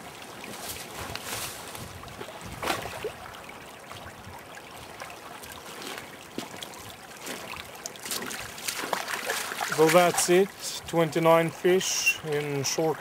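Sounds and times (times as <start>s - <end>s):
stream running: 0.0s - 13.0s
footsteps on forest floor: 0.5s - 1.8s.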